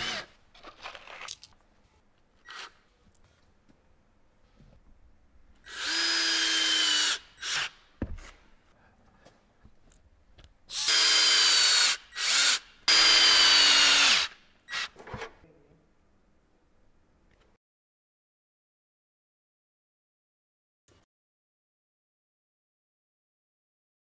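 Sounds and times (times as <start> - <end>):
cordless drill whining: 0.0 - 0.3, 5.7 - 7.7, 10.7 - 14.9.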